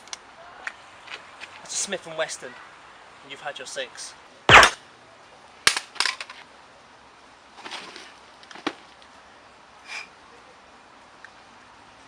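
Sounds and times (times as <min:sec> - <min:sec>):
sharp crack: 0:04.5 - 0:04.8, 0:05.7 - 0:06.2.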